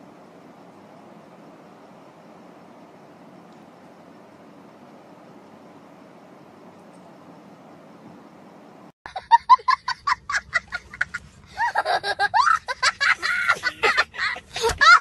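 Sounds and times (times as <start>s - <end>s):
young child laughing hard: 9.1s - 15.0s.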